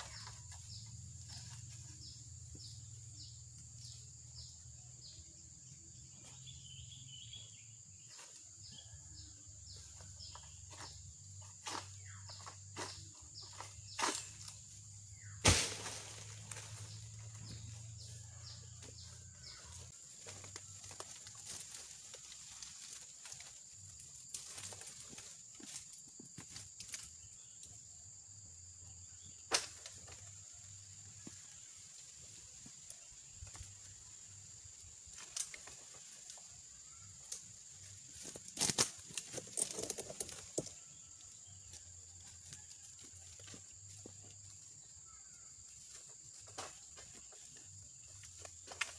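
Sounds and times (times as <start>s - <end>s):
bird chirps: 0.0s - 9.1s
dry palm fronds crackling: 12.4s - 18.3s, 19.5s - 27.1s, 31.0s - 41.0s
sharp thud: 15.4s - 16.1s.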